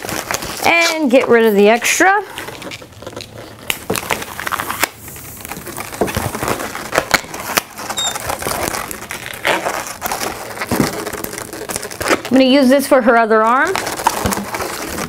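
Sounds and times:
balloons squeaking and rubbing: 0:00.0 - 0:12.7, 0:13.5 - 0:15.0
sharp balloon clicks: 0:06.9 - 0:08.6.

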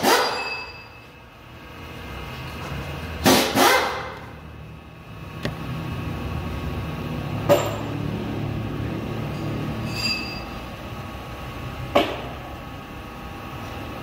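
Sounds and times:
brief metallic ring: 0:00.1 - 0:01.0, 0:09.8 - 0:10.5.

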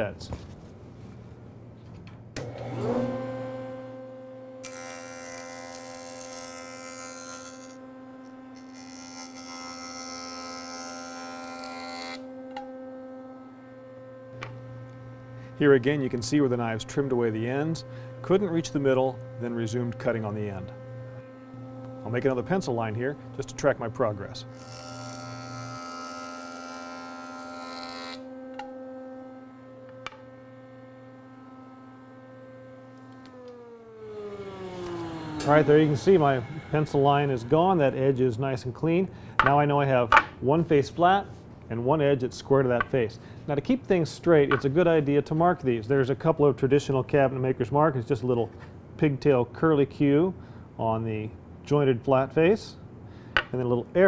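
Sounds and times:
jointer knives cutting wood: 0:02.4 - 0:38.4, 0:39.4 - 0:40.4, 0:44.5 - 0:44.7
jointer motor hum: 0:02.4 - 0:38.4.

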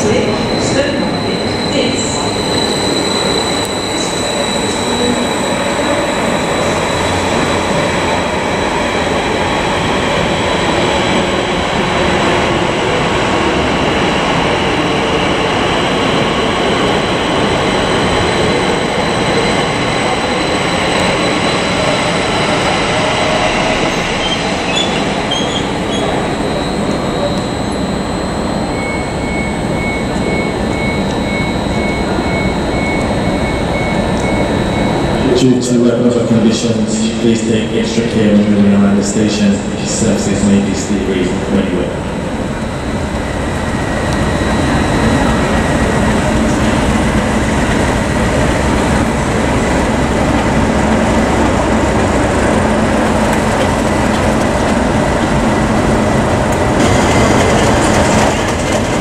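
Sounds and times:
wheels on rail: 0:00.0 - 0:35.8, 0:42.0 - 0:59.0
diesel locomotive engine: 0:00.0 - 0:59.0
wheels squealing on track: 0:00.2 - 0:07.5, 0:24.0 - 0:35.2
short high beeps: 0:25.4 - 0:35.4.

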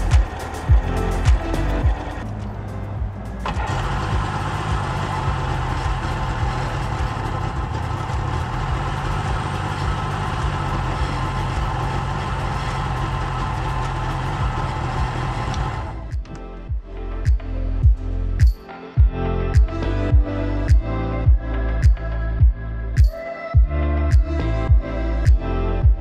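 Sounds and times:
two-stroke jet ski engine running: 0:03.5 - 0:15.9.

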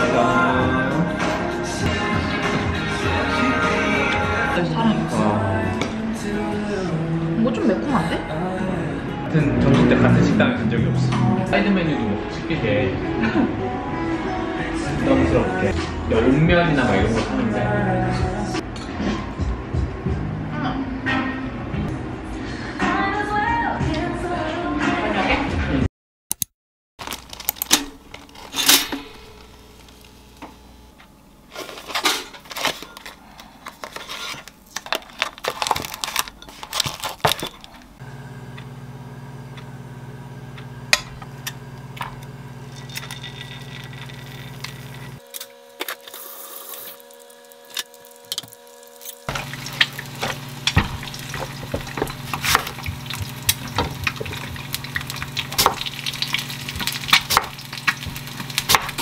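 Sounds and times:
cookware and utensils clinking: 0:42.7 - 0:45.2.

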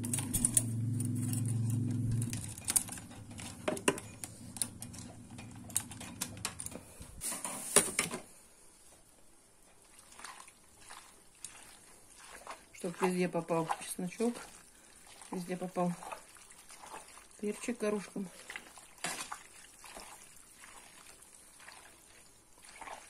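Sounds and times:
low steady hum: 0:00.0 - 0:07.3.

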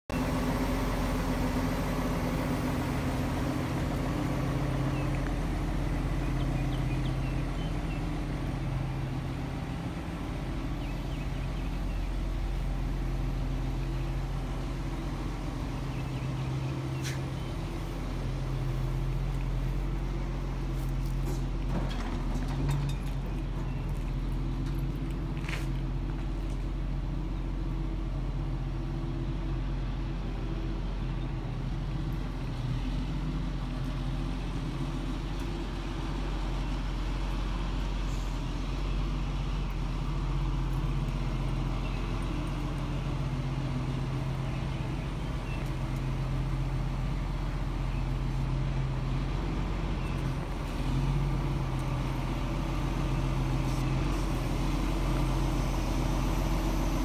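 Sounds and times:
engine idling: 0:00.1 - 0:57.0.

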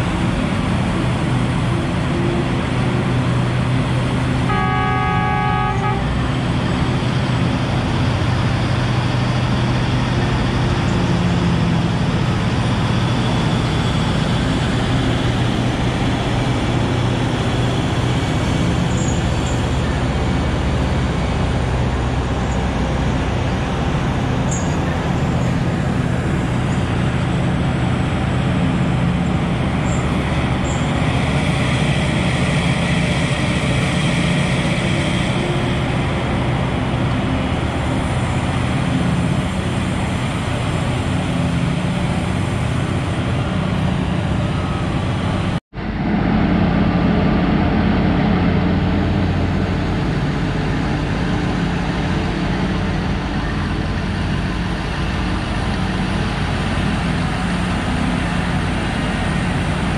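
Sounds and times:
diesel engines droning: 0:00.0 - 0:59.9
vehicle horn: 0:04.5 - 0:06.2.

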